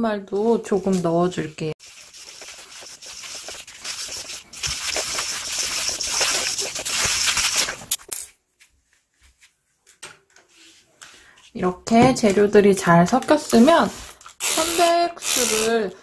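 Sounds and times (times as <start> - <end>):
hand scraping powder in metal bowl: 1.8 - 8.0.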